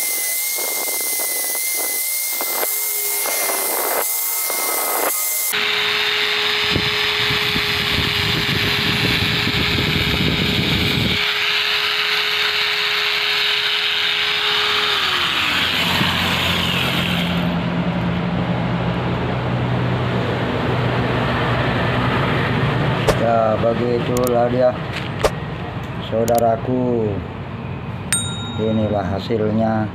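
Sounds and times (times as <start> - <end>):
angle grinder whining: 0.0 - 17.6.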